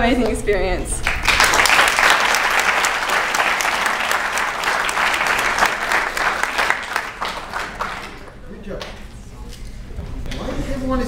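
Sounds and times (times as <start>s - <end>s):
audience applauding: 1.0s - 8.9s.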